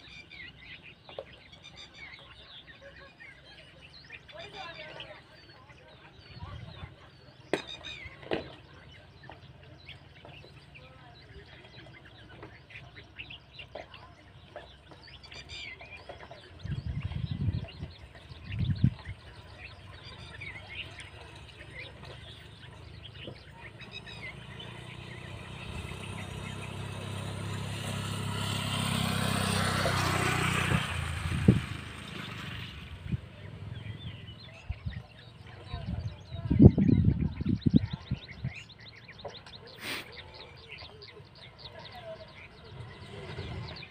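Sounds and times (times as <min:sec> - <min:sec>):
birds chirping: 0:00.0 - 0:43.9
faint voices: 0:00.0 - 0:43.9
distant vehicle engine revving: 0:06.1 - 0:43.9
low rumbles: 0:08.5 - 0:39.5.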